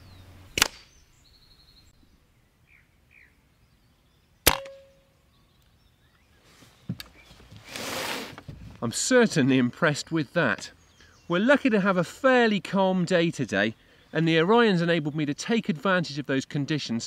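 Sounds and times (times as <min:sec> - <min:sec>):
air rifle shots: 0:00.5 - 0:01.0, 0:04.4 - 0:04.9
short metallic ring: 0:04.5 - 0:05.2.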